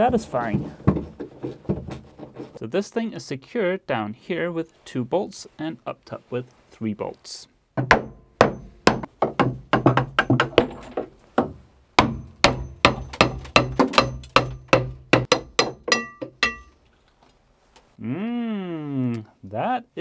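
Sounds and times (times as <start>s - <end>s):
hammer striking steel bracket: 7.8s - 9.5s, 12.0s - 16.8s.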